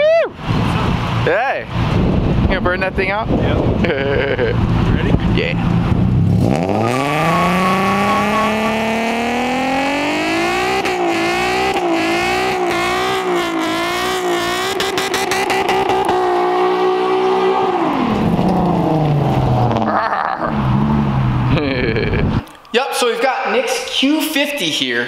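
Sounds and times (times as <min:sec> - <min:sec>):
car engine revving hard: 0:03.4 - 0:22.3.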